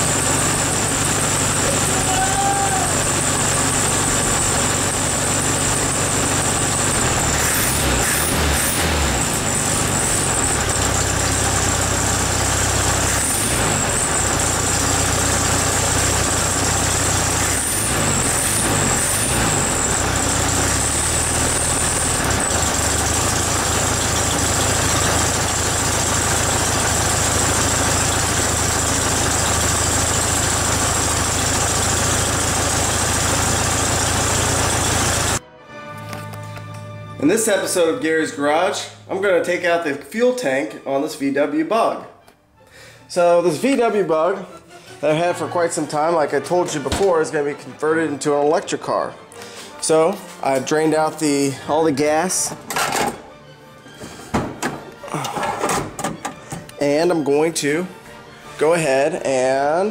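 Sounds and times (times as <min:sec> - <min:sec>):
car engine idling and revving: 0:00.0 - 0:35.4.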